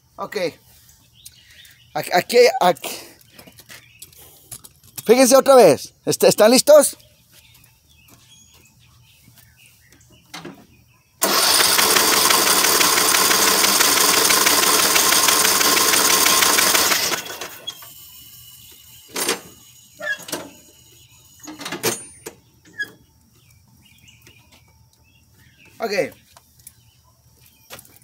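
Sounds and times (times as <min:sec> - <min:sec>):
electric starter motor cranking: 0:11.2 - 0:21.5.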